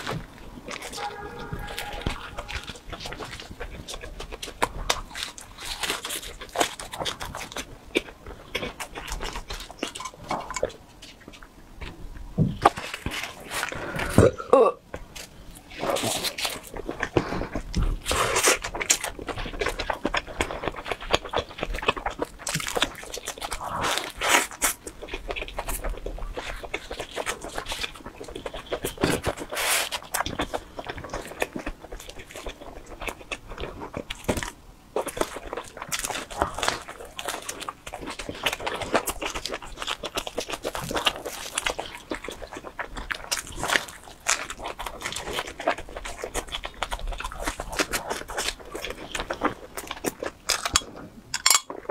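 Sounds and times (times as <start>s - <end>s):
chewing pizza crust: 0.0s - 51.9s
mouth sounds: 0.8s - 3.3s.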